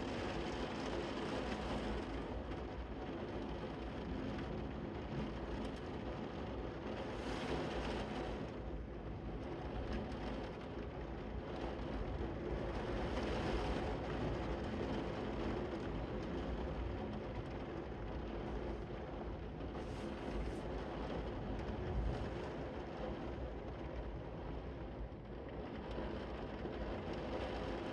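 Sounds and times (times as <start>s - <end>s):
heavy rain on a window: 0.0s - 27.9s.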